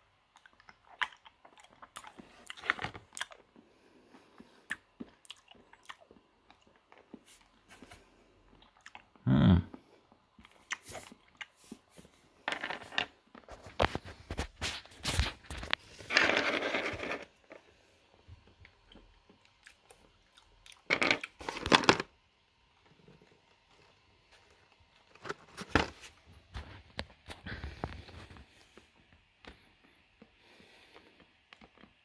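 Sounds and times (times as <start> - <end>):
hard candy being chewed: 0.2 - 7.7, 8.3 - 12.0, 18.4 - 21.4.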